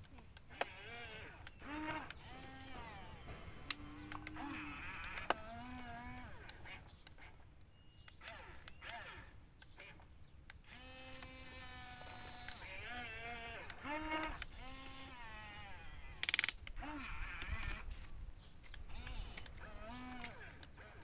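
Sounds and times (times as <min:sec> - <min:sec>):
sharp clicks: 0:00.0 - 0:15.2, 0:16.2 - 0:21.0
drawn-out animal calls: 0:00.7 - 0:10.0.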